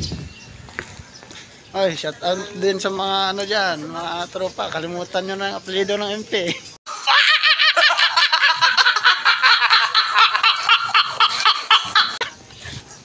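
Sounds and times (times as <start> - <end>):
person giggling: 6.5 - 12.3.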